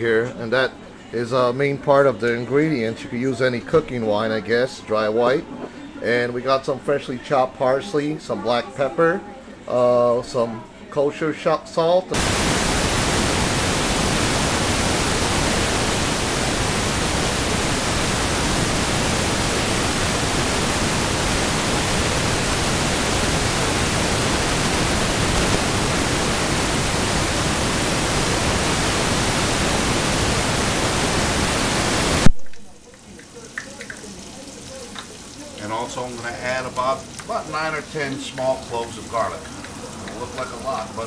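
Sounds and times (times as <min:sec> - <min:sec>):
loud static hiss: 0:12.1 - 0:32.7.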